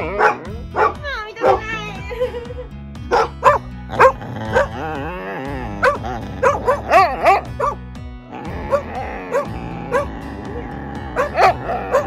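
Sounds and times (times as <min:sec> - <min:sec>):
background music: 0:00.0 - 0:12.0
dog yipping and whining: 0:05.8 - 0:07.8, 0:08.7 - 0:10.1, 0:11.2 - 0:12.0.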